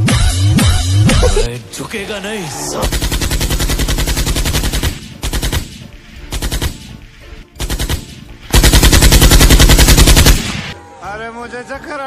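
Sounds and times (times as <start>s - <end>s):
machine-gun fire bursts: 2.8s - 7.0s, 7.6s - 10.8s.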